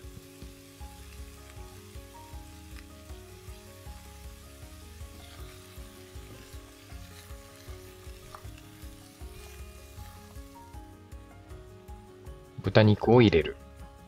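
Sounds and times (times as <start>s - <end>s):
vegetables sizzling in oil: 0.0s - 12.1s
utensil scraping vegetables: 5.1s - 10.7s.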